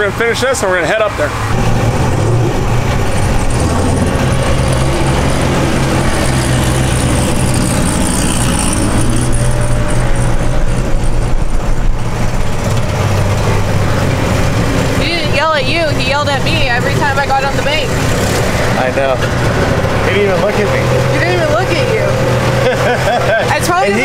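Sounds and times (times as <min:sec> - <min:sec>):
golf cart engine hum: 0:00.0 - 0:24.0
wind noise: 0:01.5 - 0:20.0.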